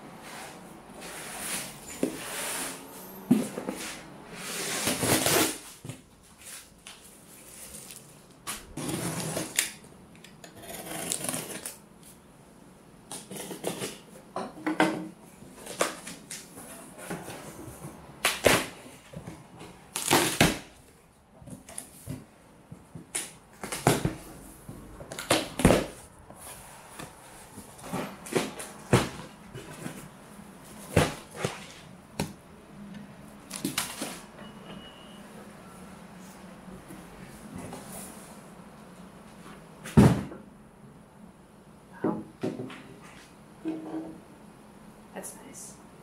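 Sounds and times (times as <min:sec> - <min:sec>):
cardboard scraping and rustling: 0:00.2 - 0:09.6.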